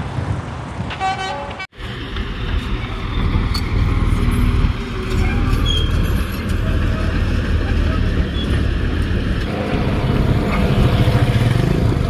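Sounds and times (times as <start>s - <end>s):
traffic rumble: 0.0s - 12.0s
vehicle horn toot: 0.9s - 1.7s.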